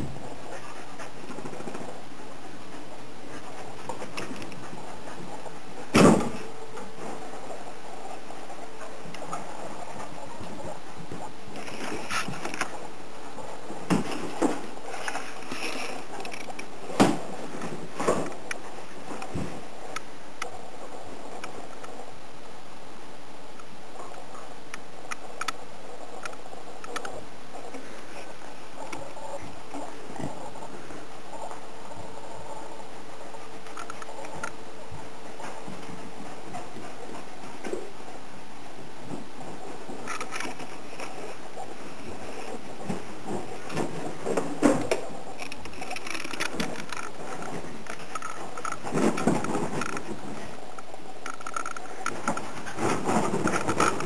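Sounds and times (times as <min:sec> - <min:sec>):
steady hiss: 0:00.0 - 0:54.0
thin steady hum: 0:00.0 - 0:54.0
dull thumps: 0:03.4 - 0:07.2, 0:16.9 - 0:18.4.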